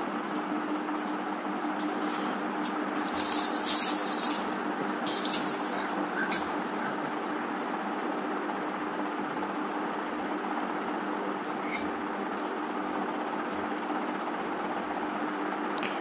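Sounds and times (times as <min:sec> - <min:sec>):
fish sizzling in hot oil: 0:00.0 - 0:13.1
oil spitting: 0:00.0 - 0:13.1.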